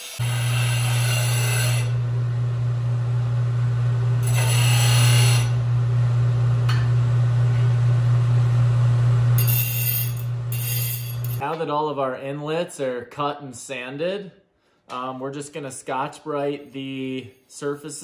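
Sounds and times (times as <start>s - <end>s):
power sander motor hum: 1.9s - 9.3s
abrasive grinding on metal: 9.4s - 11.4s.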